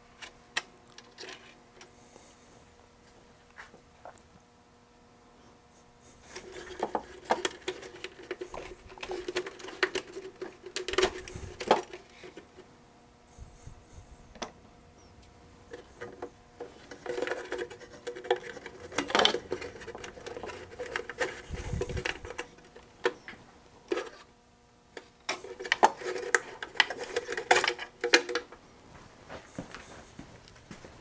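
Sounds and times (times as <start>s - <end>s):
clicking and rattling of parts: 6.3s - 12.5s, 15.7s - 24.2s, 25.0s - 28.6s.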